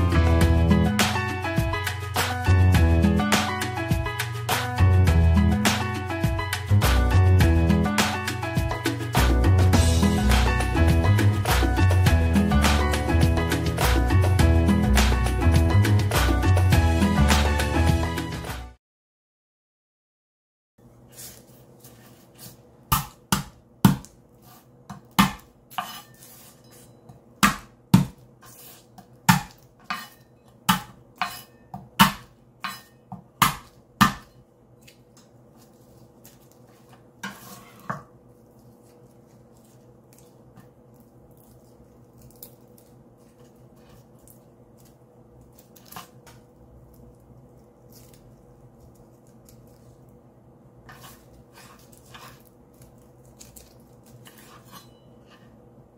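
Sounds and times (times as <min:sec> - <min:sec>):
knife smashing garlic on board: 0:22.9 - 0:24.2, 0:24.9 - 0:26.2, 0:27.4 - 0:34.4
rustling garlic skins: 0:34.8 - 0:55.3.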